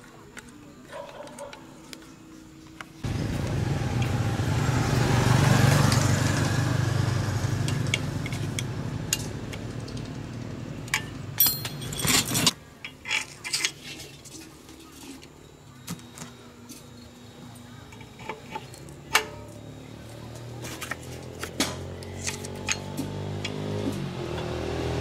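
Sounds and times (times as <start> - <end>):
grinding machine motor running: 3.0 - 10.8.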